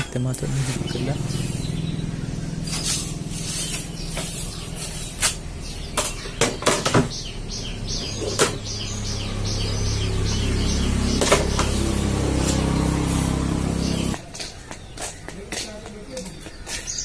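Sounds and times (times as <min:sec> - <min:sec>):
steady low hum: 0:00.0 - 0:14.2
broom brushing floor: 0:00.4 - 0:06.2, 0:10.4 - 0:14.5
plastic containers knocking: 0:05.9 - 0:07.2.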